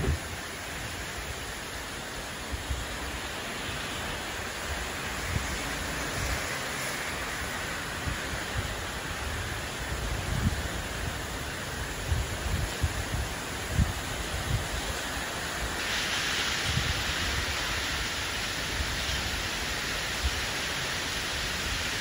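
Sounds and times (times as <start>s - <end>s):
wind buffeting microphone: 0.0s - 1.5s, 3.9s - 15.0s, 16.4s - 19.5s
heavy rain hissing: 0.0s - 22.0s.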